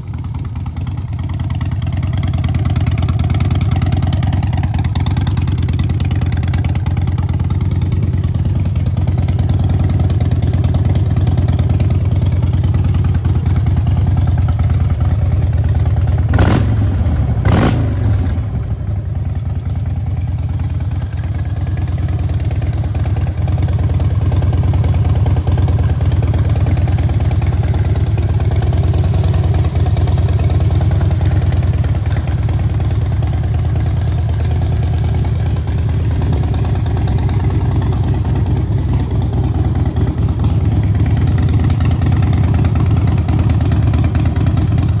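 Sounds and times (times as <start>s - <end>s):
motorcycle engine idling: 0.0s - 45.0s.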